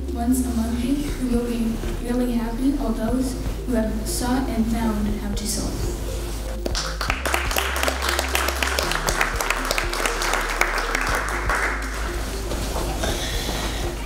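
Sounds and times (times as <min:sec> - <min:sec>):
soft background music: 0:00.0 - 0:14.0
audience applauding: 0:06.6 - 0:12.2.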